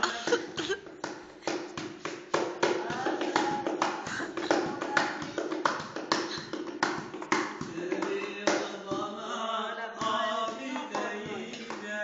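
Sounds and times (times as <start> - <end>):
hand-struck dance beat: 0.0 - 9.2, 10.0 - 12.0.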